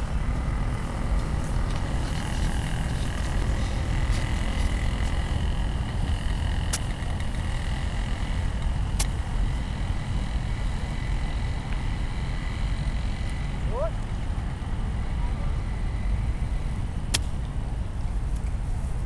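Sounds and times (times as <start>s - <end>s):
wind buffeting microphone: 0.0s - 19.0s.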